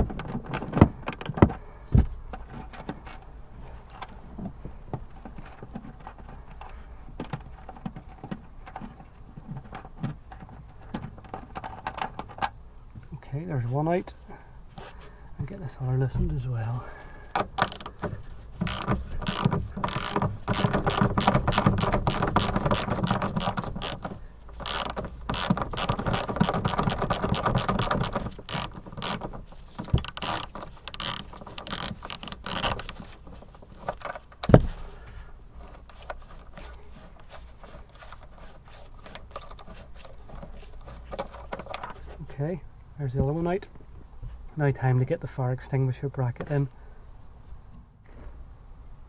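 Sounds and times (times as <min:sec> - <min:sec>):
ratchet wrench clicking: 0:24.6 - 0:29.2.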